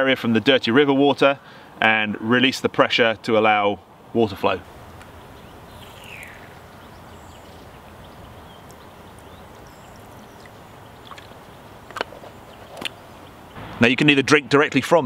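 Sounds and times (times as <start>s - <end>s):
running water rushing: 4.1s - 14.2s.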